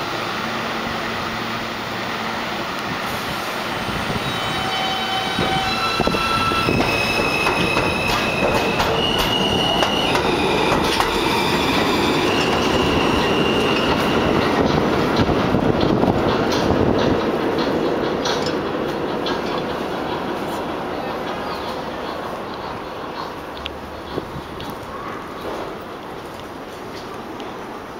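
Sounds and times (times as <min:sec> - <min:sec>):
train traction motors whining: 0:00.0 - 0:19.8
wheel squeal: 0:04.2 - 0:14.3
wheels clacking over rail joints: 0:04.6 - 0:27.8.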